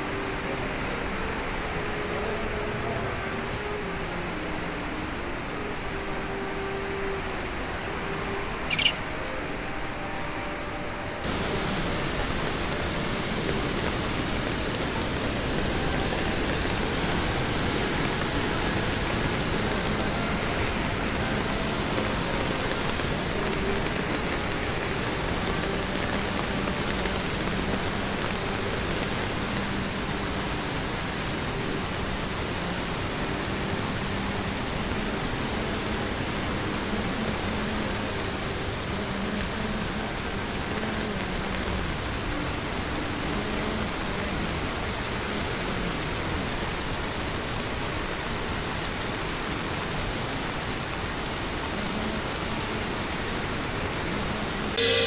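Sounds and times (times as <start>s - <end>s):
floodwater rushing: 0.0s - 55.0s.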